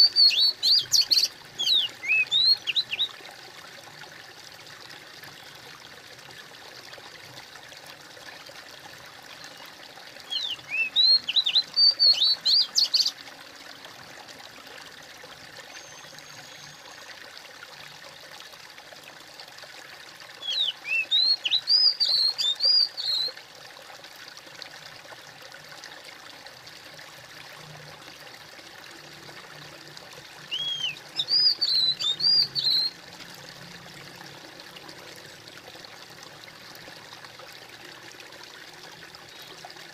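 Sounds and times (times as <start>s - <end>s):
songbird chirping: 0.0s - 3.2s, 9.4s - 13.2s, 20.4s - 23.3s, 30.4s - 33.0s
babbling water: 0.0s - 39.9s.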